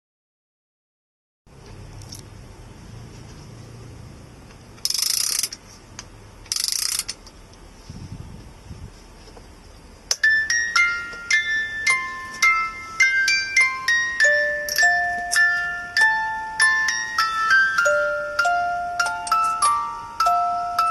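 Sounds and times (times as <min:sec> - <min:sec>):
music box ratchet clicking: 0:04.8 - 0:05.6, 0:06.5 - 0:07.2, 0:14.2 - 0:15.6
music box tune: 0:10.1 - 0:20.9.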